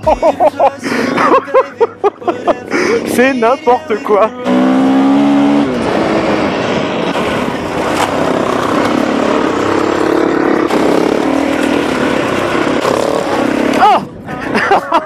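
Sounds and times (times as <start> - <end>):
motorcycle engine revving: 3.0 - 14.2.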